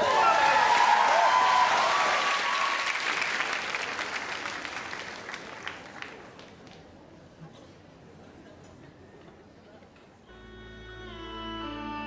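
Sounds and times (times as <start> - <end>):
audience applauding and cheering: 0.0 - 6.5.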